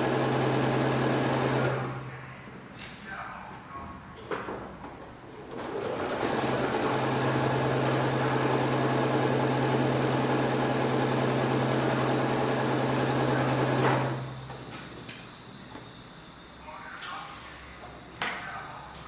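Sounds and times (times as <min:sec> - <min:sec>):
sewing machine motor hum: 0:00.0 - 0:02.0, 0:05.5 - 0:14.4
sewing needle rapid chatter: 0:05.6 - 0:14.1.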